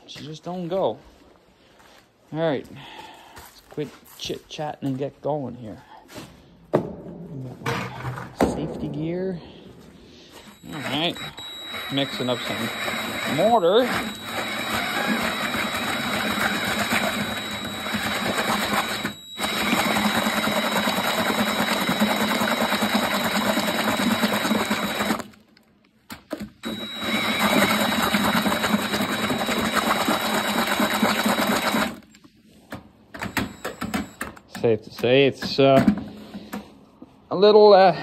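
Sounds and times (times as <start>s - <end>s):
drill mixing wet mortar: 10.3s - 25.4s, 26.5s - 32.1s.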